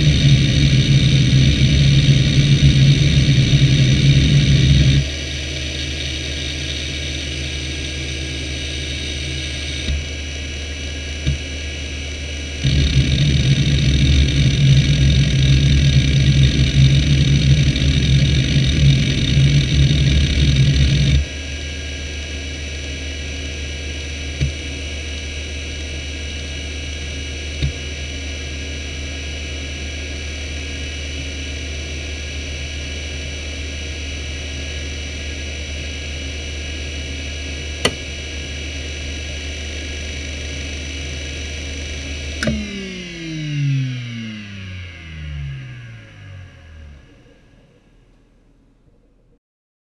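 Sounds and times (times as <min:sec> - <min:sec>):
hard drive seek chatter: 0:00.0 - 0:21.3
hard drive platters whining: 0:00.0 - 0:32.2, 0:32.8 - 0:48.2
hard drive clicks: 0:09.6 - 0:10.2, 0:11.2 - 0:11.6, 0:12.6 - 0:21.3, 0:24.4 - 0:24.8, 0:37.8 - 0:38.2, 0:42.4 - 0:42.9.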